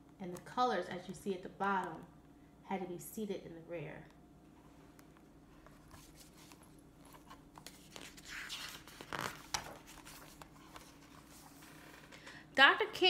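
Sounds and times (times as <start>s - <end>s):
paper pages rustling: 4.6s - 12.2s.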